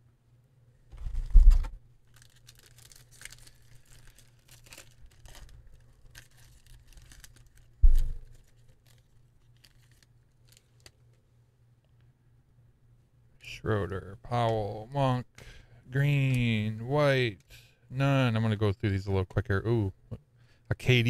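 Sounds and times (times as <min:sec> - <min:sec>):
cellophane wrapper crinkling and tearing: 0:01.1 - 0:11.1
dull thump: 0:07.8 - 0:08.3.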